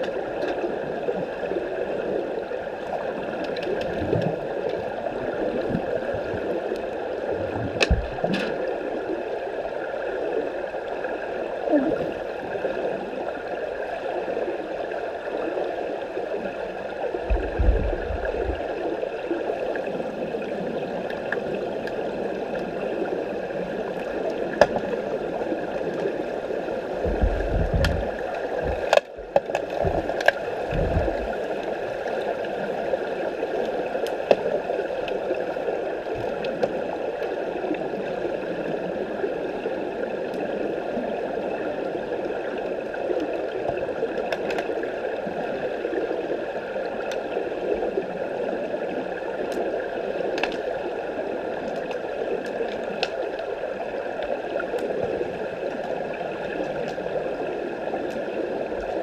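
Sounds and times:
underwater bubbling rush: 0:00.0 - 0:59.0
sharp underwater clicks: 0:24.6 - 0:24.9, 0:27.0 - 0:32.2, 0:44.2 - 0:44.7
low thumps: 0:27.0 - 0:28.9, 0:30.7 - 0:31.4.

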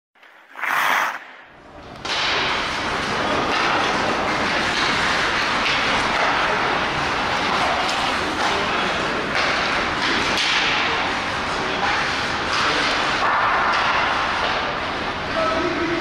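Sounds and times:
skates scraping ice: 0:00.2 - 0:01.6
hockey sticks and puck knocking: 0:01.9 - 0:08.5.

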